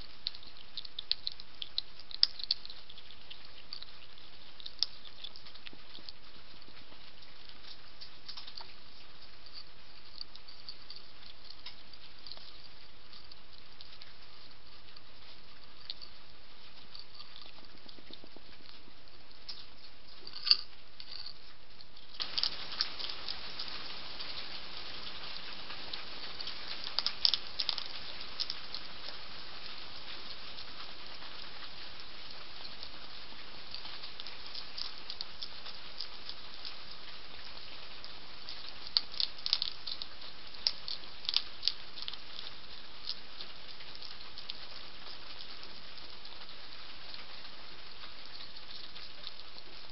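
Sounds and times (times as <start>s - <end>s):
hedgehog crunching food pellets: 0.0s - 49.9s
rain hissing: 22.2s - 48.6s.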